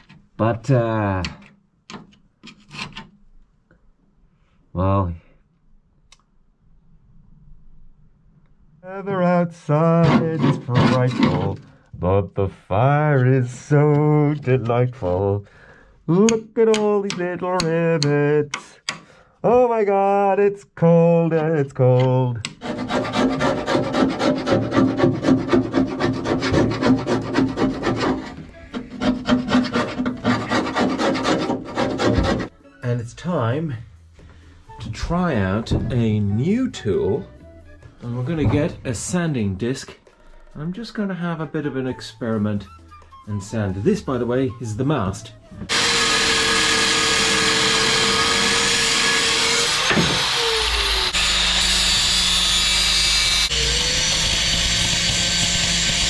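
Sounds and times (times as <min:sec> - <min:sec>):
hand tool scraping rust off steel: 0:09.9 - 0:11.6, 0:22.5 - 0:32.5
angle grinder grinding steel: 0:45.7 - 0:56.0.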